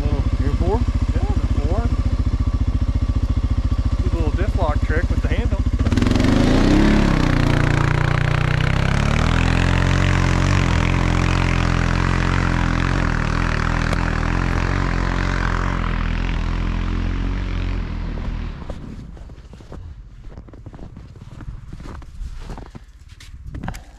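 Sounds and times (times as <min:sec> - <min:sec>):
quad bike engine revving: 0:00.0 - 0:18.8.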